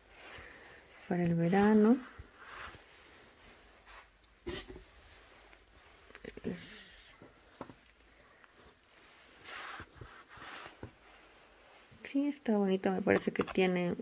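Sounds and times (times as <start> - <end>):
fabric rustling: 0.0 - 13.7.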